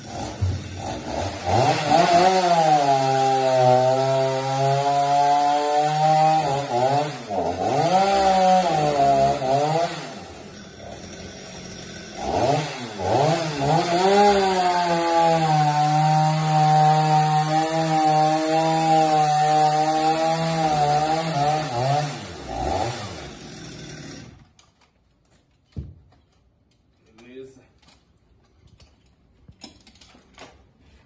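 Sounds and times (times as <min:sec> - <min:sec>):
chainsaw cutting at high revs: 0:00.0 - 0:24.6.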